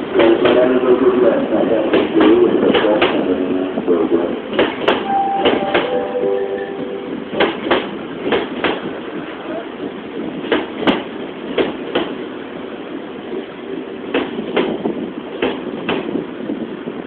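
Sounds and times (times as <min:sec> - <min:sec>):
train rumbling: 0:00.0 - 0:17.0
wheels clacking over rail joint: 0:04.5 - 0:06.0, 0:07.3 - 0:08.9.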